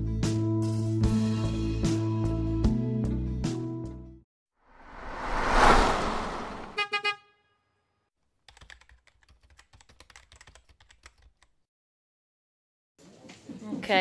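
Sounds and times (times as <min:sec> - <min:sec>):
whoosh: 0:04.8 - 0:06.8
rapid keyboard typing clicks: 0:08.5 - 0:11.5.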